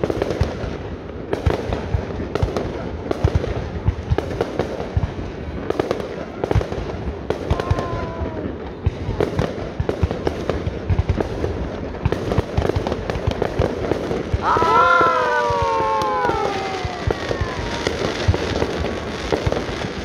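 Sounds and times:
fireworks bangs and crackles: 0.0s - 20.0s
long falling tone: 14.4s - 18.2s.

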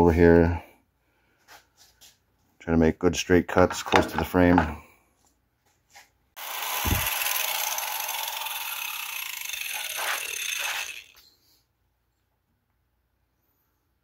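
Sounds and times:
angle grinder cutting steel: 6.4s - 11.2s.

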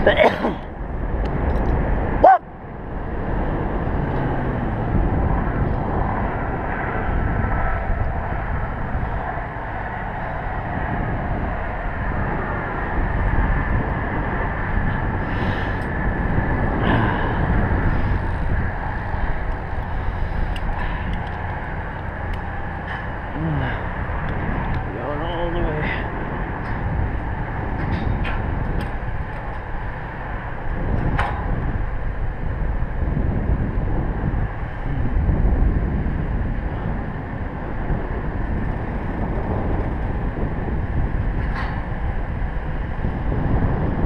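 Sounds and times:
wind buffeting microphone: 0.0s - 44.0s.

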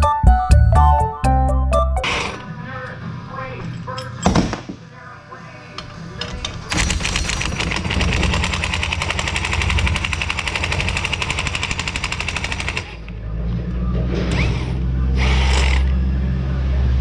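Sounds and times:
impact wrench rattling: 5.8s - 12.9s.

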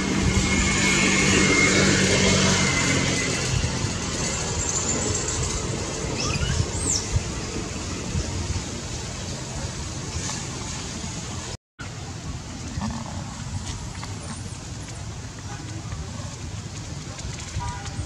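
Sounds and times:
passing vehicle engine hum: 0.0s - 11.5s.

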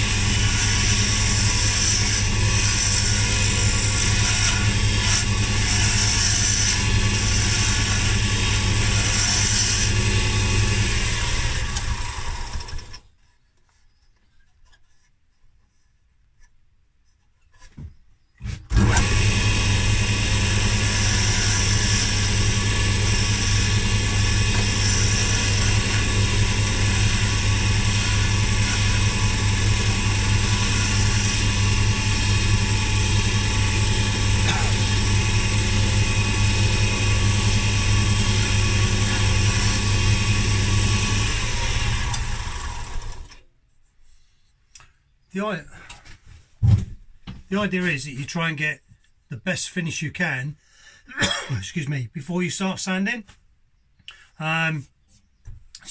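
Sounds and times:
chisel scraping spinning wood: 0.0s - 13.0s, 18.4s - 43.3s
wood lathe motor running: 0.0s - 13.0s, 18.7s - 43.4s.

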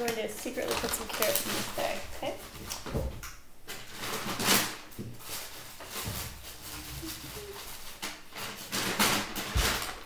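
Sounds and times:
bag rustling: 3.9s - 10.0s.

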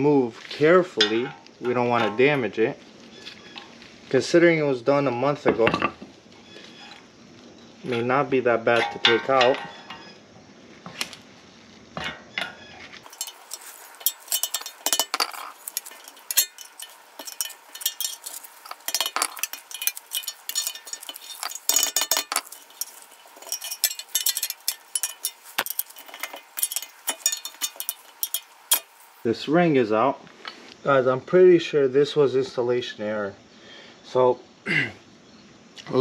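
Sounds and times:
hand tools clinking on metal: 0.9s - 2.6s, 7.8s - 10.1s, 12.1s - 29.2s.

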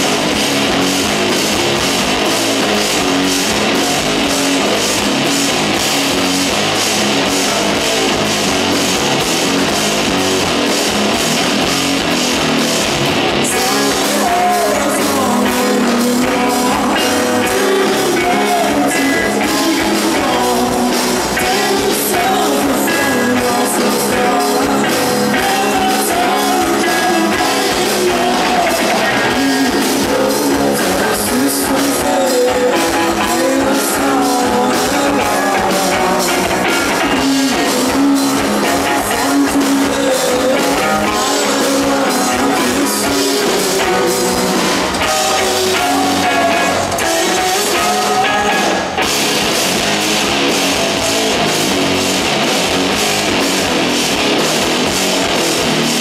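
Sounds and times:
rock band playing live: 0.0s - 56.0s
man singing: 13.2s - 49.2s.

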